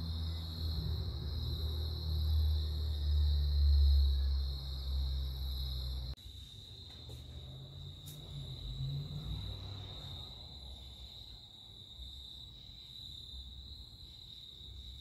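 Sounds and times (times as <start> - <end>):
low rumble: 0.0 - 6.2
crickets trilling: 0.0 - 15.0.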